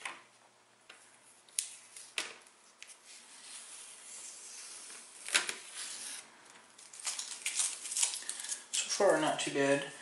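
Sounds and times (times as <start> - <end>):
masking tape peeling: 2.8 - 8.9.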